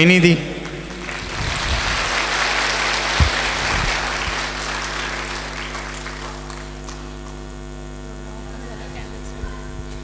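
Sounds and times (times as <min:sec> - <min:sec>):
audience clapping: 0:00.0 - 0:07.5
steady electrical hum: 0:00.0 - 0:10.0.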